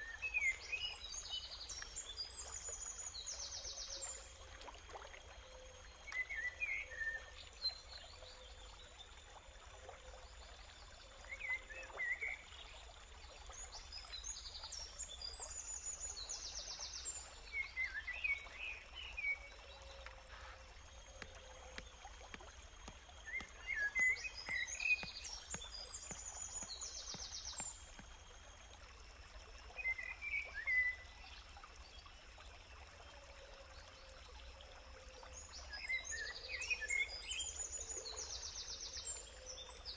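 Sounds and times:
stream water running: 0:00.0 - 0:39.9
birds twittering: 0:19.8 - 0:28.0.

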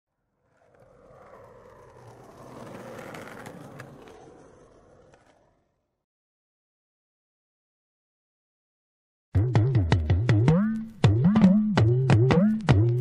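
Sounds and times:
skateboard wheels rolling on pavement: 0:00.1 - 0:06.0.

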